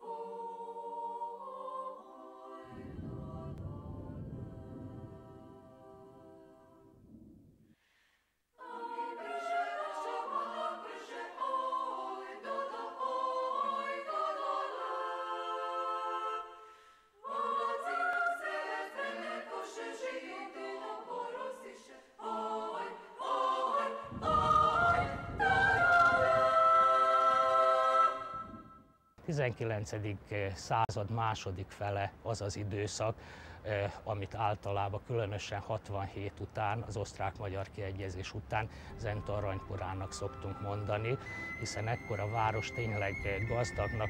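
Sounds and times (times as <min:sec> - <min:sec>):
women's choir singing a cappella: 0:00.0 - 0:07.0, 0:08.6 - 0:28.7, 0:38.9 - 0:44.0
deep low sound: 0:02.7 - 0:07.6.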